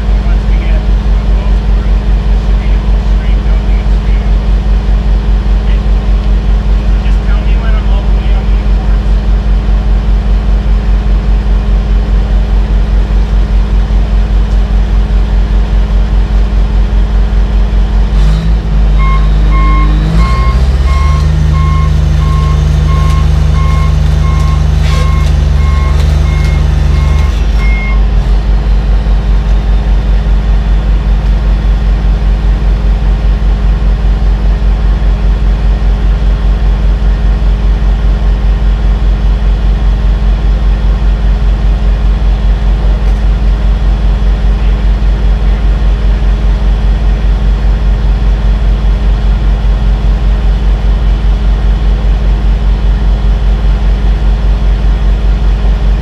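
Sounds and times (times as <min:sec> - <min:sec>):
diesel engine droning: 0:00.0 - 0:56.0
backup alarm beeping: 0:19.0 - 0:28.1.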